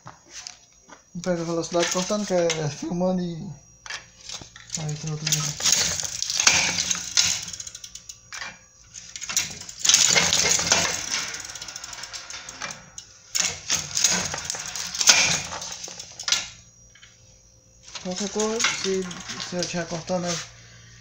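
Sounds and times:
nuts rattling through metal chute: 4.2 - 16.5, 17.9 - 20.2.

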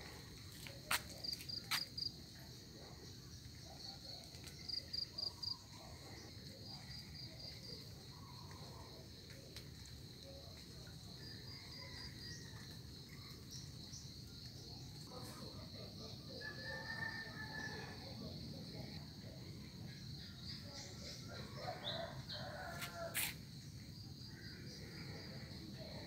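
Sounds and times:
insect chirping: 9.8 - 18.1.

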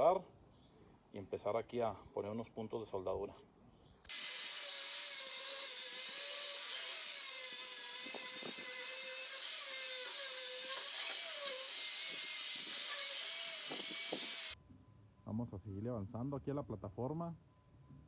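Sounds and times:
angle grinder grinding steel: 4.1 - 14.6.

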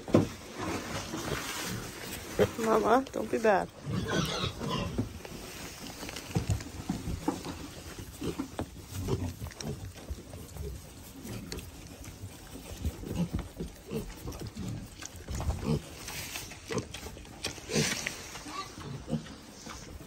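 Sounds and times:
pigs grunting: 3.8 - 5.1, 8.0 - 20.0.

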